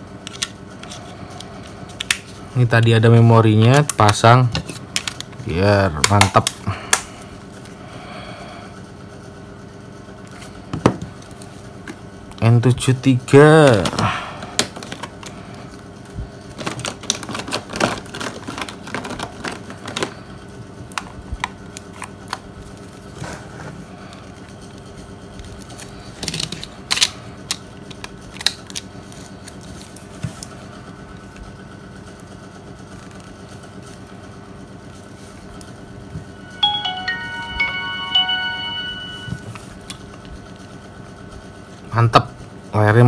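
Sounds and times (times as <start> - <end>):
faint steady hum: 33.0 - 40.7.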